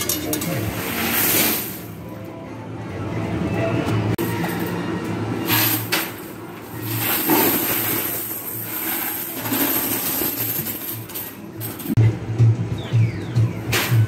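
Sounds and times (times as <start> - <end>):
coins clattering: 0.0 - 2.0, 5.4 - 12.0.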